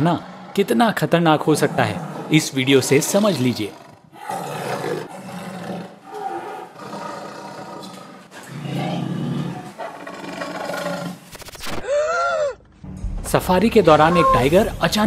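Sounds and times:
leopard roaring and snarling: 0.0 - 11.3.

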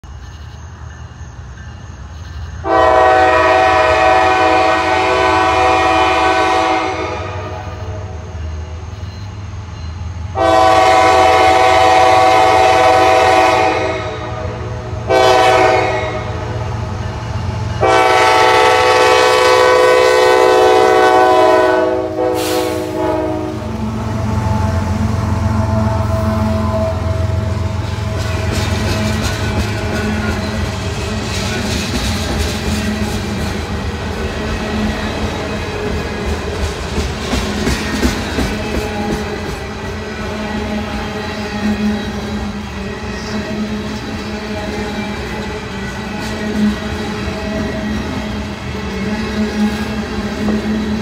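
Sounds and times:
locomotive air horn: 2.6 - 7.9, 10.4 - 16.5, 17.8 - 27.6.

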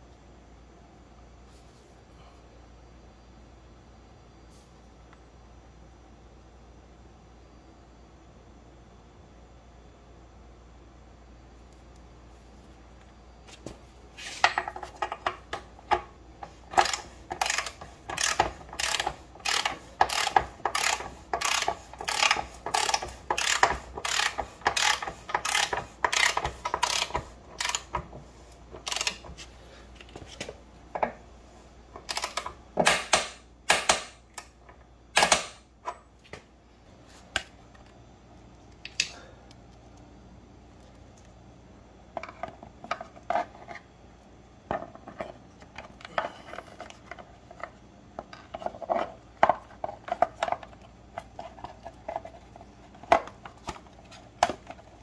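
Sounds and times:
socket ratchet wrench clicking: 16.8 - 27.9, 32.1 - 32.5.

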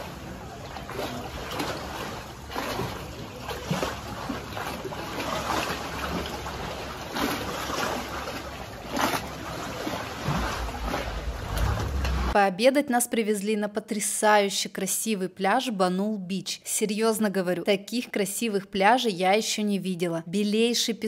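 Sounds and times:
low steady rumble: 0.0 - 12.4
water rushing along hull: 0.0 - 12.4.

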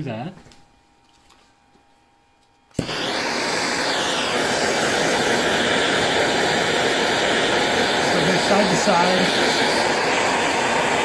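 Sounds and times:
torch flame hissing: 2.8 - 11.0.

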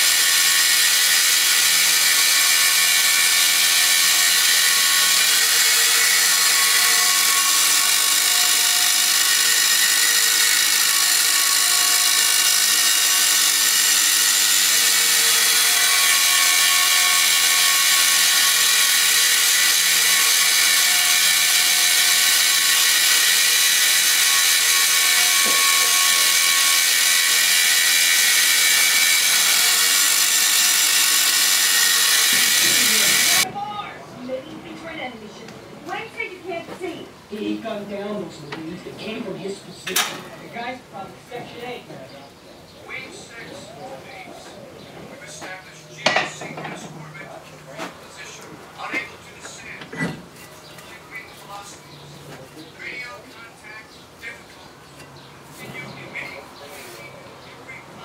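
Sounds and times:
angle grinder cutting steel: 0.0 - 33.5.

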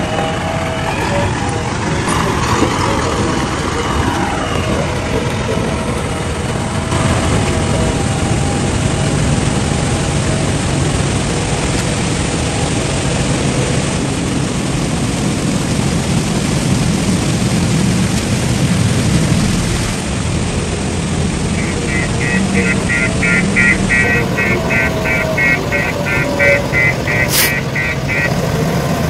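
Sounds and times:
water splashing: 16.7 - 29.0
diesel engine running: 18.4 - 29.0.

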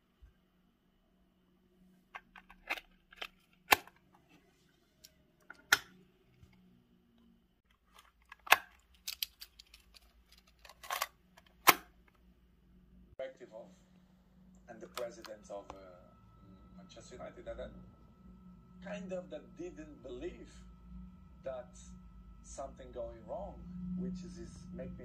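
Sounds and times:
plastic clicks and snaps: 7.9 - 11.9.

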